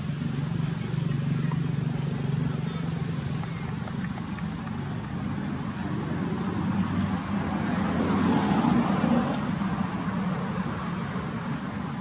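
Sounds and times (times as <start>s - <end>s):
vehicle engine running: 0.0s - 7.9s.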